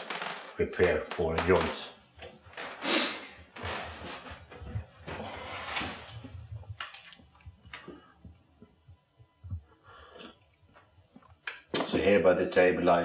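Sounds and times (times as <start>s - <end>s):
man gulping a drink: 10.0s - 11.5s.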